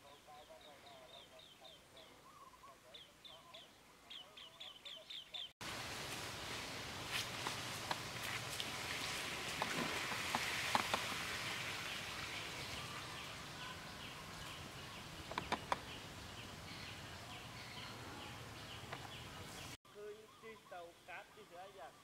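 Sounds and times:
steady hiss: 5.6s - 17.6s
sharp clicks: 15.2s - 15.9s.

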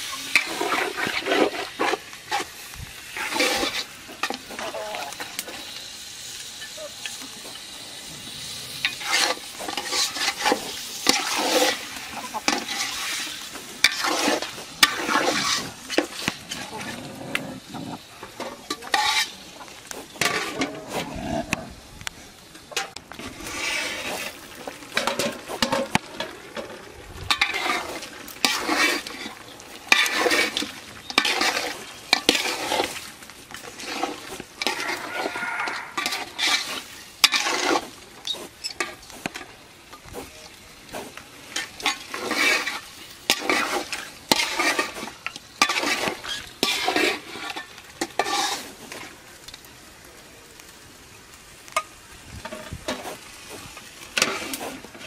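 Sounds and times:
metal pot and utensils clattering: 0.0s - 2.5s, 8.8s - 17.0s, 17.8s - 20.8s, 22.7s - 35.0s, 35.7s - 39.5s, 41.5s - 48.8s
food sizzling: 0.0s - 55.0s.

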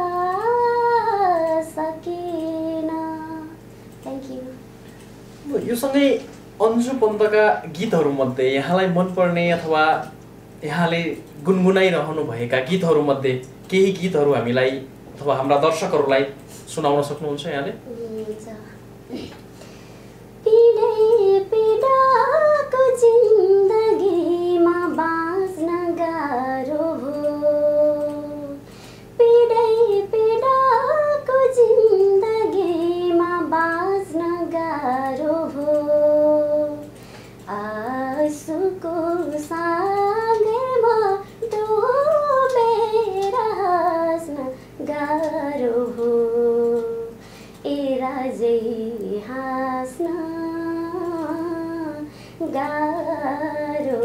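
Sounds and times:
woman singing unaccompanied: 0.0s - 4.6s, 17.8s - 19.3s, 20.4s - 54.0s.

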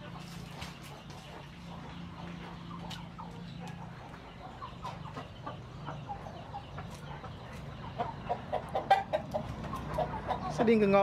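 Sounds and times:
poultry clucking: 0.0s - 11.0s.

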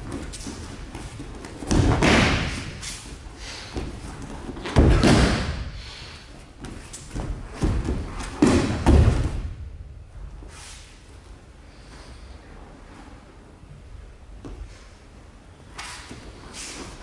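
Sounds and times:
body thumping on mats: 0.0s - 5.8s, 6.6s - 9.7s.

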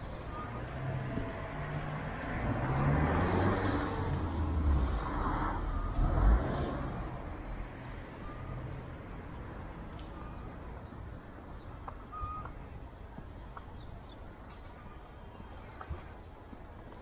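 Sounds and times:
vehicle passing by: 0.3s - 9.7s.

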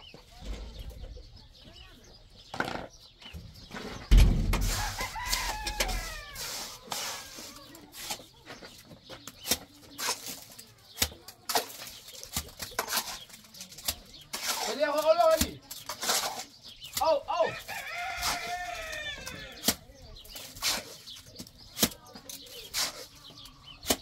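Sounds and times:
chickens clucking: 0.0s - 15.6s
heavy thump: 0.3s - 2.0s, 4.0s - 4.9s
trowel scraping mortar: 3.6s - 17.0s, 17.6s - 24.0s
rooster crowing: 4.7s - 6.4s, 17.5s - 19.5s.

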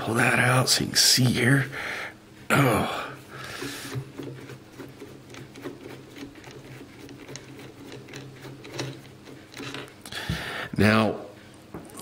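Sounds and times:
low steady hum: 0.0s - 12.0s
screwdriver metal clicks and scrapes: 4.2s - 9.9s.

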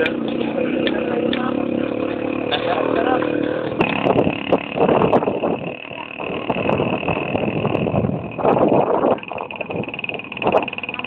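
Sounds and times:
motorcycle engine running: 0.0s - 11.0s
wind noise: 3.7s - 11.0s.

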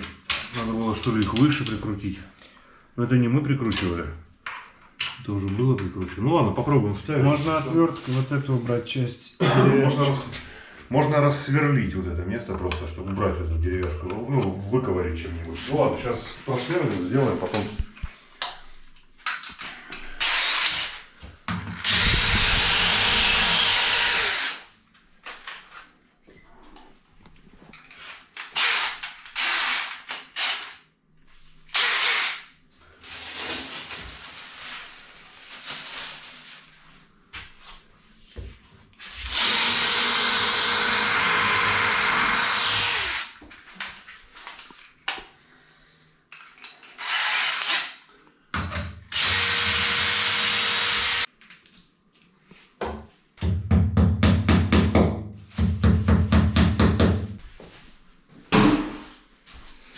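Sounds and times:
cordless drill whining: 20.2s - 21.0s, 21.8s - 24.6s, 39.3s - 43.3s, 49.1s - 51.3s.

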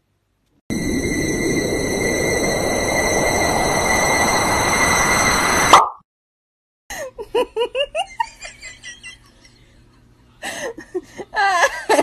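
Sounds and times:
person laughing: 6.9s - 9.6s.

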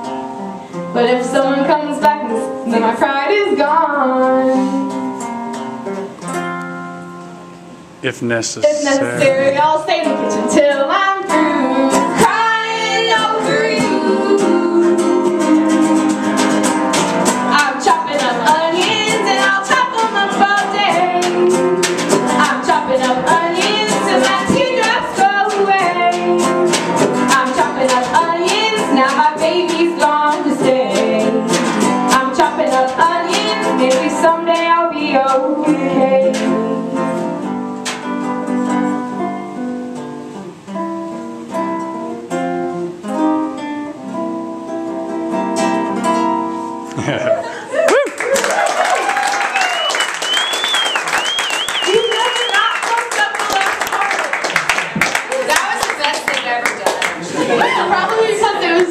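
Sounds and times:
strummed guitar: 0.0s - 47.8s
person singing: 8.6s - 10.5s, 11.2s - 16.4s.

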